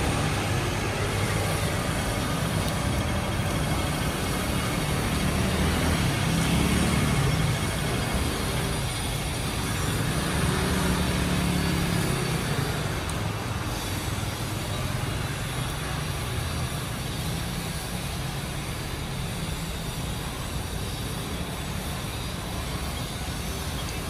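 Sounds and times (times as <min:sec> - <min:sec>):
cars driving on wet road: 0:00.0 - 0:24.0
motor scooter driving past: 0:09.7 - 0:13.1.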